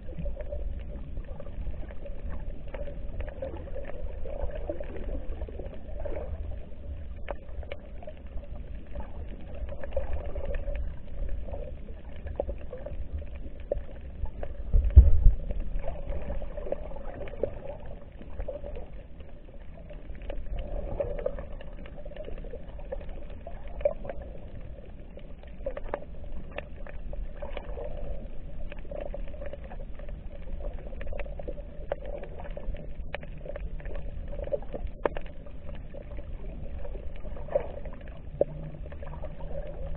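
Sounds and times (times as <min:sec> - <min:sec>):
underwater rumble of moving water: 0:00.0 - 0:39.9
deep thump: 0:14.7 - 0:15.4
faint scattered clicks: 0:17.2 - 0:39.9.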